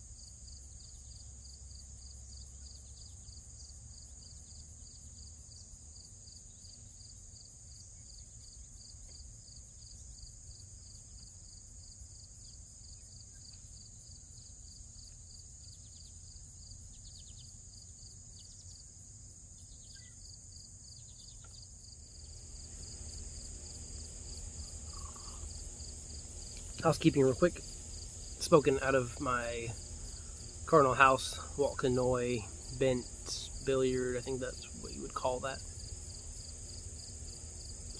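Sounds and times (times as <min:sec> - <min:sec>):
continuous high insect drone: 0:00.0 - 0:37.9
insects pulsing high chirp: 0:00.0 - 0:37.9
faint bird chirps: 0:19.6 - 0:20.2, 0:24.7 - 0:25.5
low background rumble: 0:22.0 - 0:37.9.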